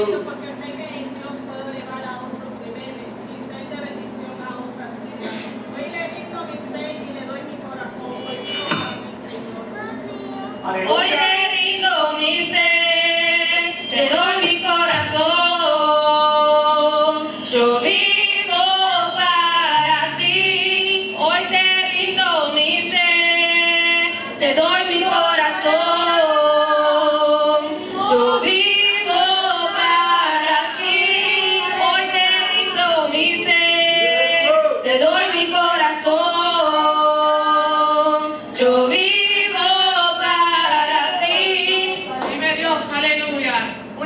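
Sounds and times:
choir singing through microphones: 10.7 - 44.0.

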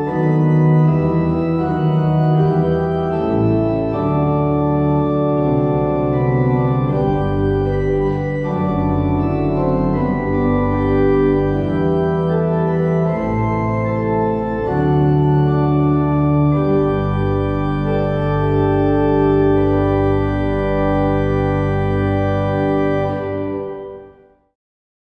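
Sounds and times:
pipe organ playing hymn chords: 0.0 - 24.4.

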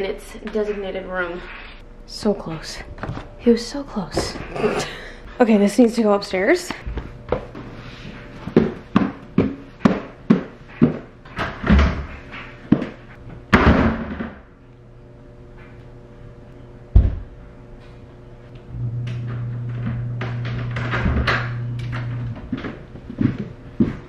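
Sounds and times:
footsteps climbing wooden stairs: 22.3 - 24.0.

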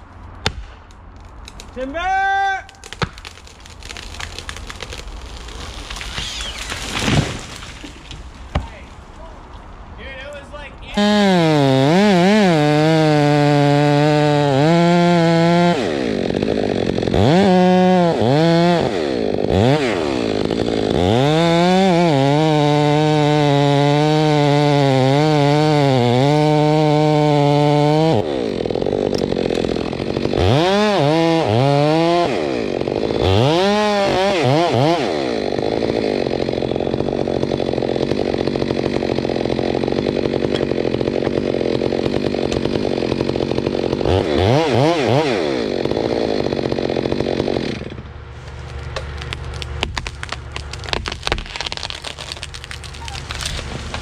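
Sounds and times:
chainsaw cutting wood: 2.7 - 8.9, 10.9 - 54.0.

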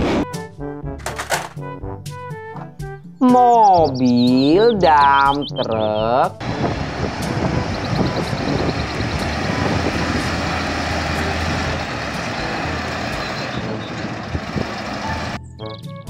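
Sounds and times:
diesel truck engine rumbling: 3.5 - 15.8.

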